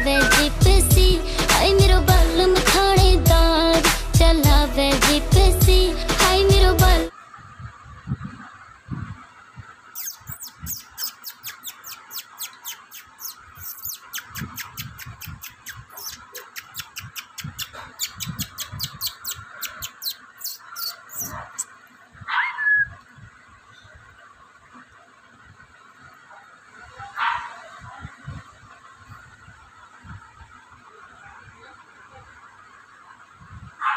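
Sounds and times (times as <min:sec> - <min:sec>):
soft low thumps: 0:00.0 - 0:01.2.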